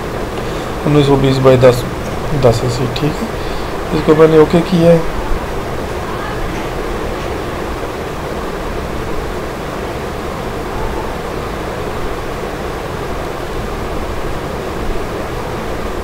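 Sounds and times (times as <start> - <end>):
background hiss: 0.0 - 16.0.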